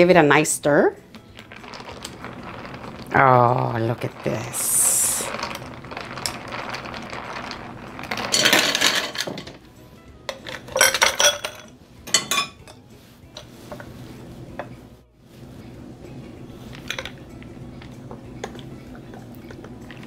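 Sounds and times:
spoon stirring ice in pitcher: 1.3s - 9.6s, 16.7s - 17.2s
ice cubes dropped into glass: 1.4s - 3.1s, 4.9s - 9.6s.

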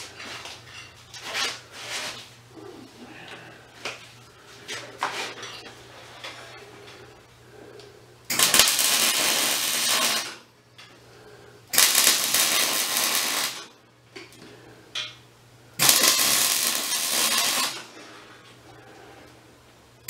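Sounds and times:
electric arc welding: 8.3s - 10.5s, 11.7s - 13.8s, 15.8s - 17.9s.

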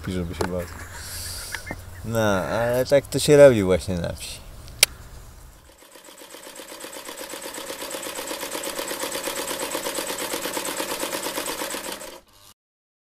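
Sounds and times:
film projector rattle: 5.7s - 12.5s.

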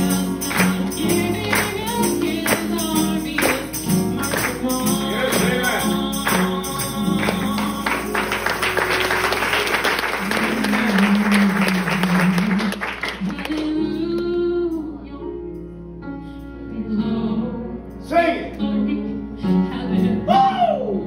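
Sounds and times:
worship music with singing: 0.0s - 21.0s
congregation clapping: 0.4s - 13.8s.

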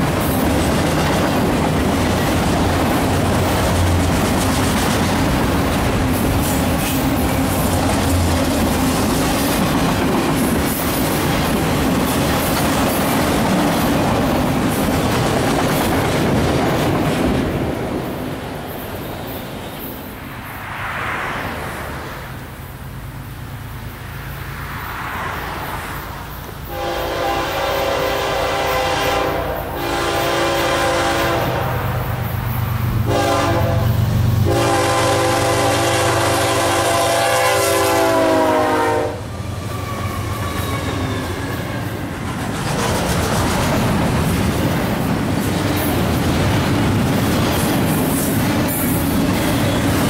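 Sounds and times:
train cars rolling by: 0.0s - 50.0s
diesel engines rumbling: 20.0s - 37.7s
locomotive horn: 26.7s - 32.0s, 33.0s - 42.0s.

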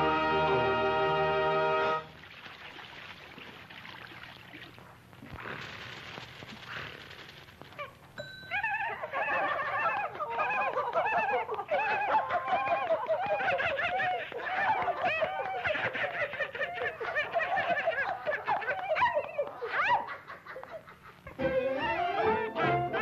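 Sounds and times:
cartoon voices laughing: 8.5s - 21.4s.

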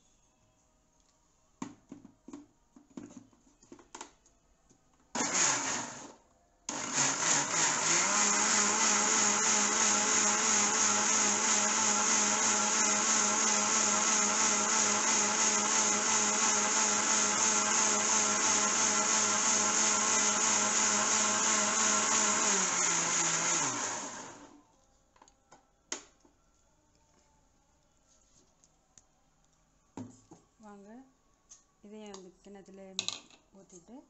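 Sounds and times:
mixer grinder running: 5.2s - 6.1s, 6.7s - 24.6s.

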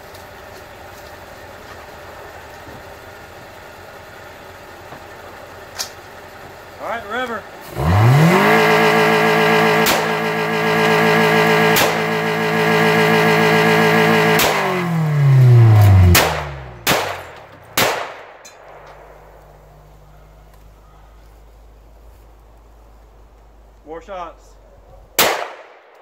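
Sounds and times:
engine running at full revs: 0.0s - 23.8s
rifle shots: 16.1s - 19.4s, 25.2s - 26.0s.

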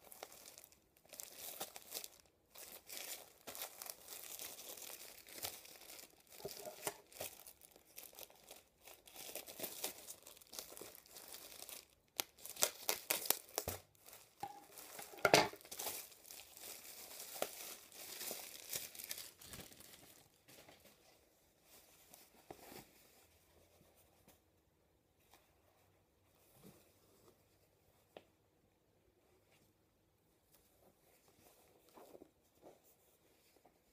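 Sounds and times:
plastic bag crinkling: 0.0s - 20.5s.

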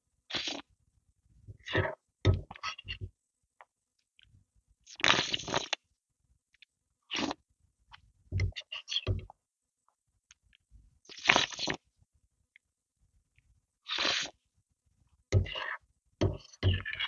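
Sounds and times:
slurping soup off a spoon: 0.3s - 0.7s, 4.9s - 5.8s, 7.1s - 7.4s, 11.1s - 11.8s, 13.9s - 14.4s.

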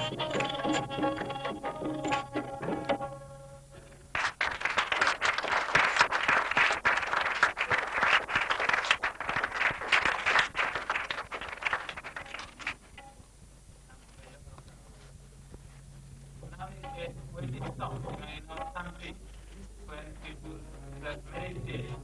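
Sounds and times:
small audience applauding: 4.1s - 13.0s.

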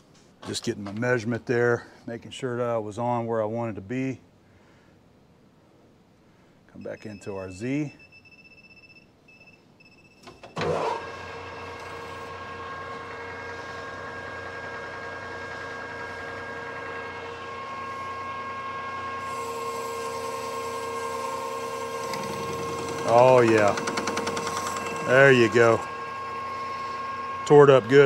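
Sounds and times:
lathe cutting whine: 10.8s - 28.0s.

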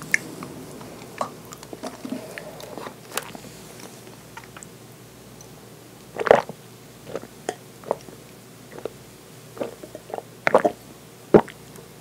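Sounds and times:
swallowing gulps: 6.2s - 9.0s, 9.6s - 10.8s, 11.4s - 11.6s.

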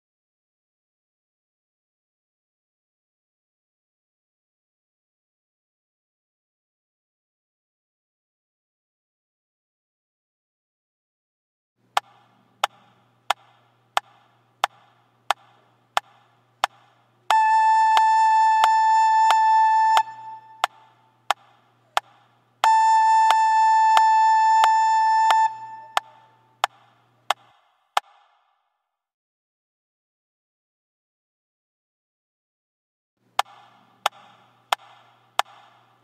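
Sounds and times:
metronome clicking: 17.9s - 21.4s, 22.0s - 26.8s.

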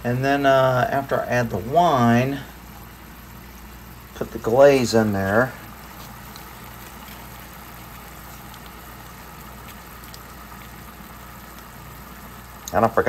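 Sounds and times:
sauce simmering in frying pan: 0.0s - 13.0s
bubbling sauce pops: 5.6s - 12.9s.

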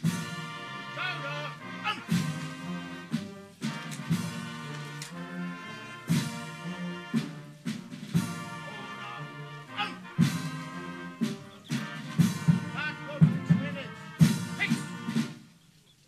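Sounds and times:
brass band playing: 0.0s - 15.6s
drum struck steadily: 2.0s - 5.2s, 6.1s - 8.7s, 10.2s - 15.5s.

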